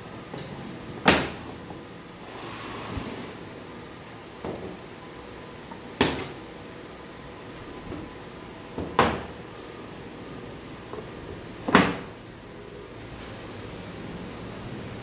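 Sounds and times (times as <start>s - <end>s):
wooden panels knocking on workbench: 1.0s - 1.5s, 6.0s - 6.4s, 8.8s - 9.3s, 11.6s - 12.1s.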